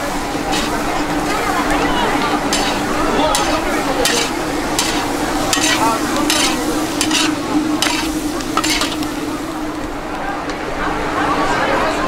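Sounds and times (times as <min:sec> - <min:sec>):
food sizzling in oil: 0:00.0 - 0:09.8
low hum: 0:00.1 - 0:11.3
metal spatula scraping a wok: 0:00.5 - 0:01.4, 0:02.4 - 0:09.1.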